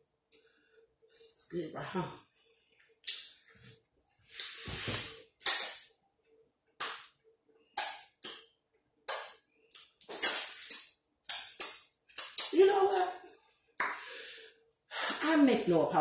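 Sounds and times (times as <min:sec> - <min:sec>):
mouth sucking: 0:09.7 - 0:10.9.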